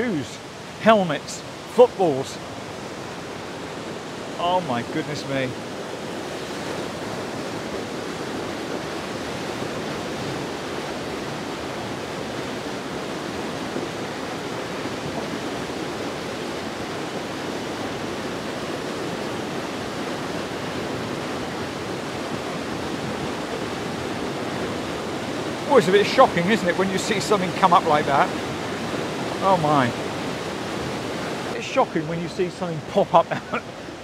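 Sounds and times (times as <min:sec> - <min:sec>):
floodwater rushing through sluice gates: 0:00.0 - 0:34.0.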